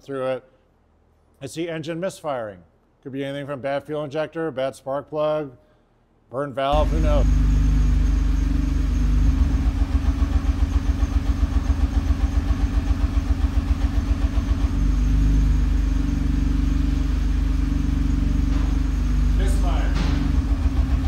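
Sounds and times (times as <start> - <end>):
car engine idling with misfire: 6.8 - 21.0.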